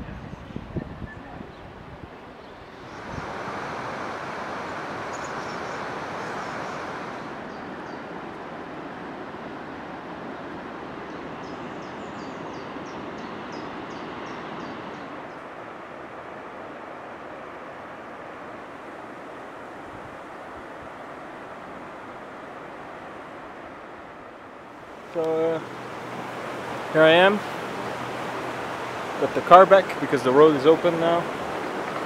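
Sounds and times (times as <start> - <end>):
outdoor rushing noise: 2.8 - 7.9, 14.2 - 32.0.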